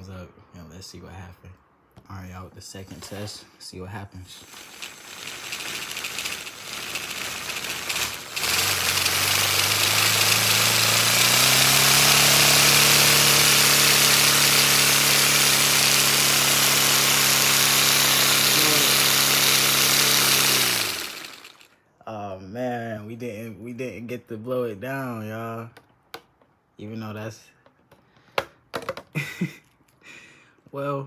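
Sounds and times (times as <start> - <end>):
model engine buzzing rattling hum: 4.4 - 21.7.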